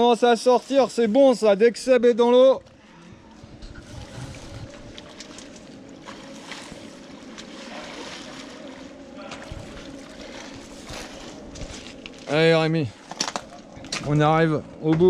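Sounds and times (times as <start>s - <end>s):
water rushing: 3.8s - 12.7s.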